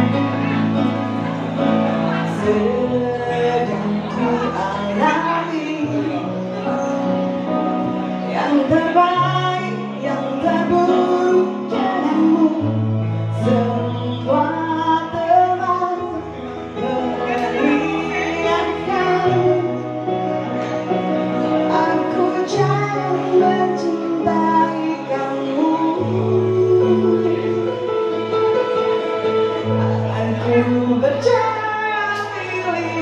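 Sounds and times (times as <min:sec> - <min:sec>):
live band playing: 0:00.0 - 0:33.0
woman singing into a microphone: 0:01.6 - 0:33.0.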